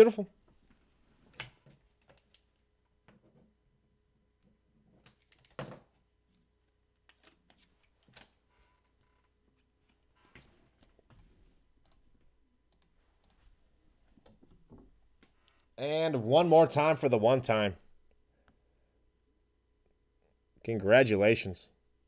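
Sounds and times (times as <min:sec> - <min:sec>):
computer mouse and keyboard clicks: 0:01.3 - 0:02.6, 0:05.0 - 0:05.8.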